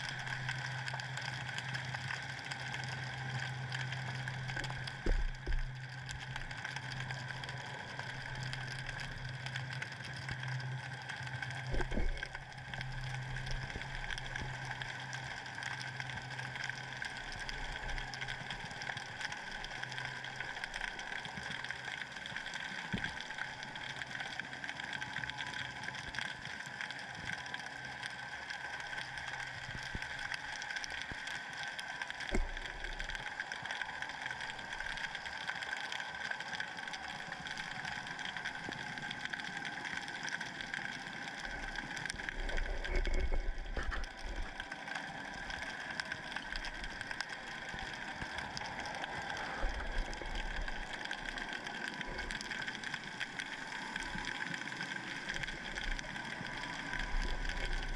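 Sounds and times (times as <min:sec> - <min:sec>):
low hum: 0:03.7 - 0:16.1, 0:42.1 - 0:44.6.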